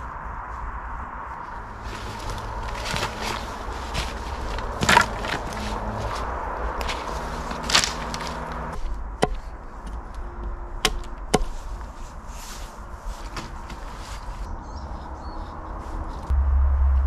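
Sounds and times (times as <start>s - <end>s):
faint scuffs and rustles: 0.0s - 8.9s, 11.4s - 16.3s
low rumble: 0.0s - 13.2s, 14.4s - 17.0s
hatchet knocking wooden pole: 9.2s - 10.0s, 10.8s - 11.5s.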